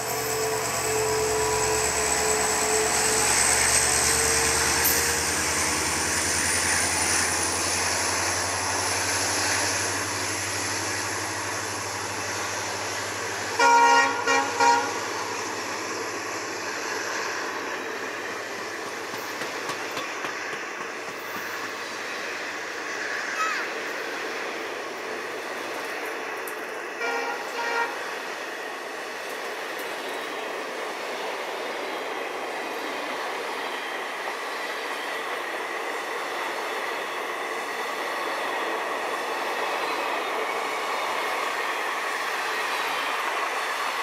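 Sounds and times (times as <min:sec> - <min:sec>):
diesel locomotive engine: 0:00.0 - 0:44.0
train coaches rolling by: 0:00.0 - 0:44.0
locomotive horn blasts: 0:13.6 - 0:15.1, 0:27.0 - 0:28.0.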